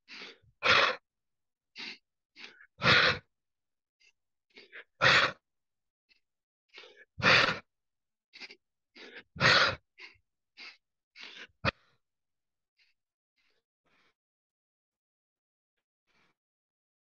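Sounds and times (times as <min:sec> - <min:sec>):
nose sniffing breaths: 0:00.1 - 0:01.0, 0:01.8 - 0:03.3, 0:08.4 - 0:11.8.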